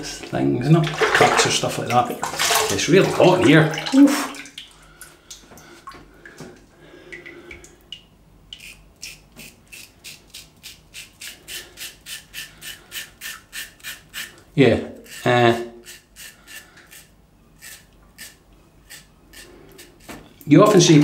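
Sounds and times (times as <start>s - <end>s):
razor scraping stubble: 8.6s - 21.0s.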